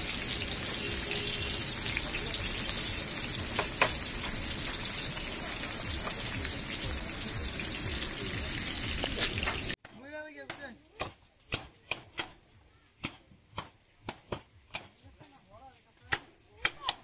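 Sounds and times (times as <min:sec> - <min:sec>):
oil sizzling on griddle: 0:00.0 - 0:09.8.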